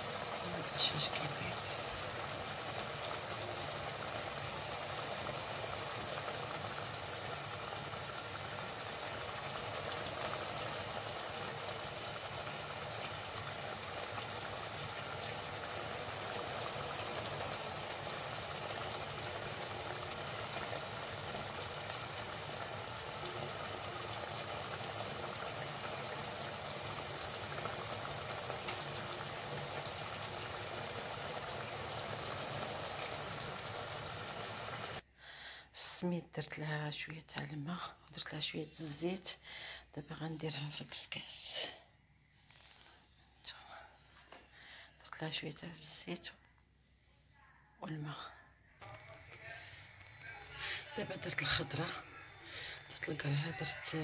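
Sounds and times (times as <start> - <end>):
food frying in oil: 0.0 - 35.0, 48.8 - 54.0.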